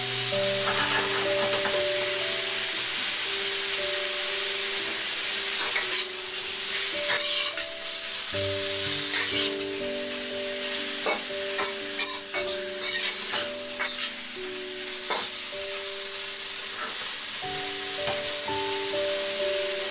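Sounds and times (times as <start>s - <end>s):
food sizzling in a wok: 0.0s - 19.9s
quiet background music: 0.0s - 19.9s
spatula scraping a pan: 0.6s - 1.8s, 5.6s - 6.2s, 7.0s - 7.8s, 9.0s - 9.6s, 10.7s - 14.2s.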